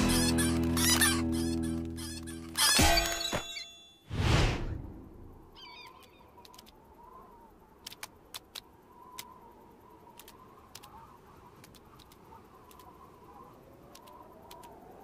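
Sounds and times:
sharp clicks: 0:06.0 - 0:06.9, 0:07.8 - 0:09.4, 0:10.0 - 0:13.0, 0:13.8 - 0:14.8.

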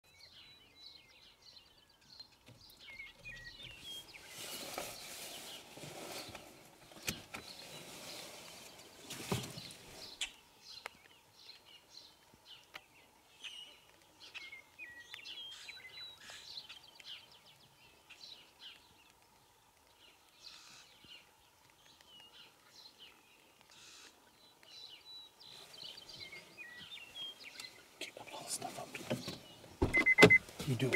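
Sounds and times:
songbirds chirping: 0:00.0 - 0:30.9
rustling noise: 0:03.7 - 0:10.2.

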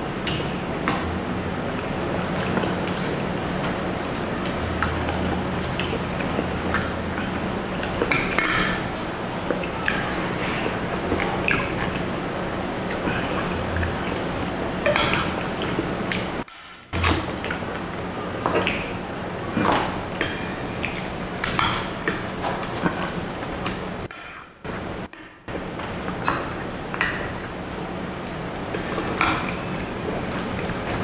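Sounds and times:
wet noodle and eating sounds: 0:01.6 - 0:31.0
cutlery clinking on glass dish: 0:08.4 - 0:08.9.

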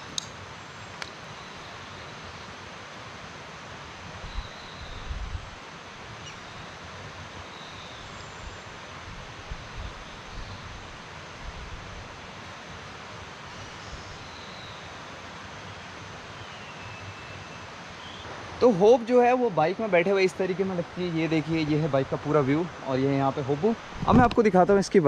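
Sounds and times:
outdoor background hiss: 0:00.0 - 0:25.0
low thuds: 0:24.0 - 0:24.4.

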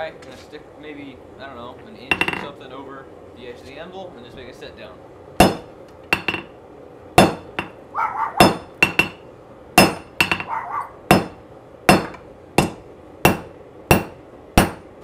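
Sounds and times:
hammer striking hot steel: 0:05.4 - 0:06.5, 0:07.2 - 0:07.8, 0:08.4 - 0:09.2, 0:09.8 - 0:10.5, 0:11.1 - 0:15.0.

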